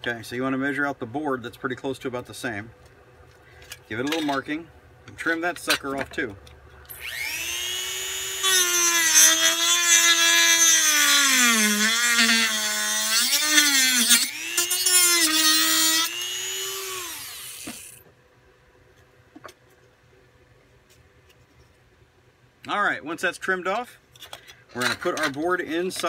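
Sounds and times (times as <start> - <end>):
motor spinning down: 6.9 - 9.8, 14.0 - 14.9, 15.6 - 18.0
rotary tool cutting wood: 6.9 - 18.0.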